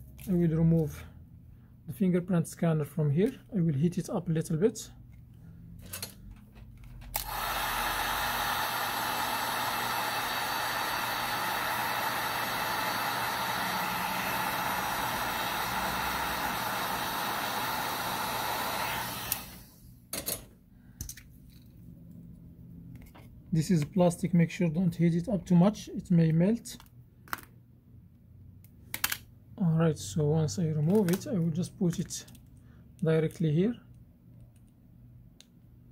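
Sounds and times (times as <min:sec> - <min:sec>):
heat gun blowing: 0:07.1 - 0:20.0.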